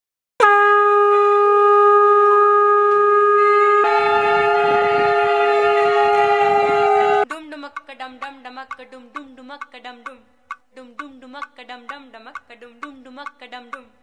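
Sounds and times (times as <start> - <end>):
conch shells blown: 0.4 - 7.3.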